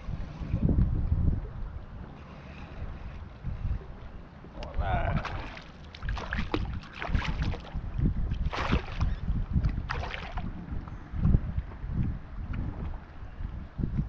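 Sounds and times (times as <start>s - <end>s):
wind rumbling on microphone: 0.0s - 14.0s
fish splashing in water: 5.2s - 7.8s, 8.4s - 9.2s, 9.8s - 10.5s.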